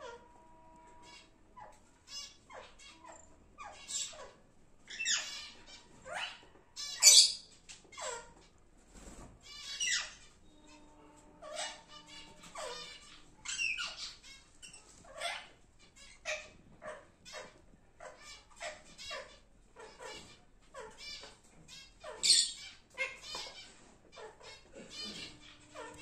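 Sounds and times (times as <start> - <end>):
lovebirds chirping: 0.0 - 8.4, 9.4 - 26.0.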